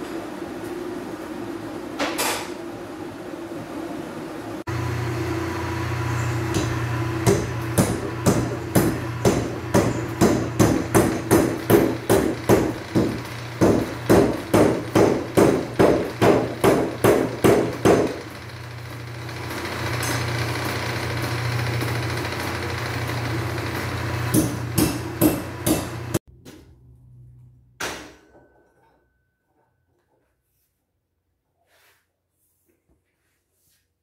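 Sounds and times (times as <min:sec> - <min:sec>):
power hammer striking hot iron: 0:06.2 - 0:18.5, 0:19.4 - 0:26.2.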